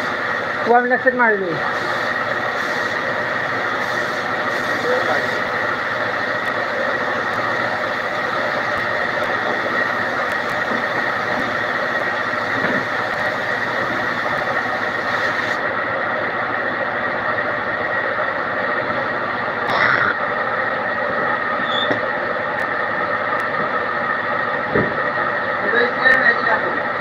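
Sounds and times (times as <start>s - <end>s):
spray gun hissing air: 0.0s - 0.7s, 1.5s - 15.6s
constant high whine: 0.0s - 27.0s.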